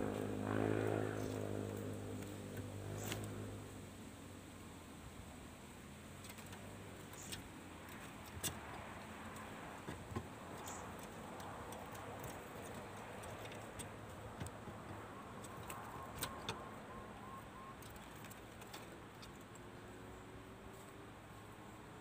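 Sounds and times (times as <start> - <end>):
background hiss: 0.0 - 11.4.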